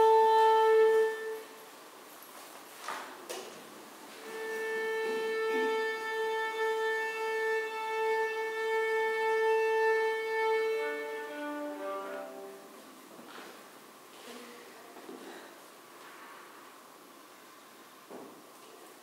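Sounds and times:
clarinet and violas playing: 0:00.0 - 0:01.6, 0:04.1 - 0:12.9.

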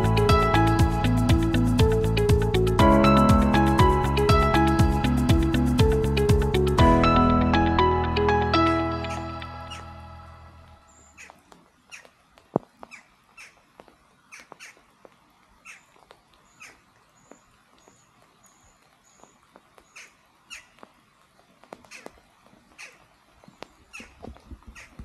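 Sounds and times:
birds calling harshly: 0:10.9 - 0:12.2, 0:12.8 - 0:14.9, 0:15.6 - 0:20.9, 0:21.8 - 0:25.0.

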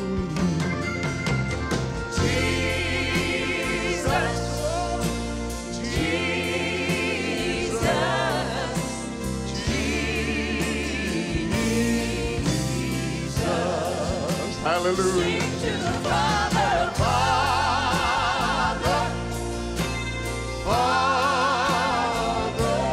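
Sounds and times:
band with strong bass: 0:00.0 - 0:22.9
vocal group singing in harmony: 0:02.1 - 0:22.9.

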